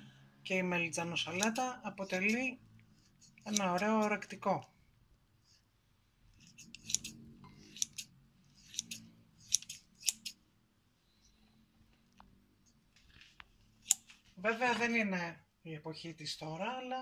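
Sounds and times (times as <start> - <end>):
scissors snipping: 1.2 - 2.6, 3.4 - 4.2, 6.4 - 10.4
faint scissor clicks: 3.4 - 4.2.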